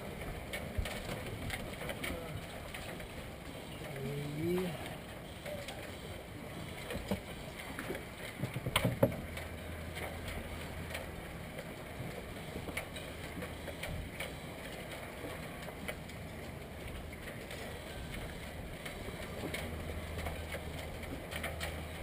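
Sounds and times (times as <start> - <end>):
knocks and taps in a boat: 6.9 - 10.3.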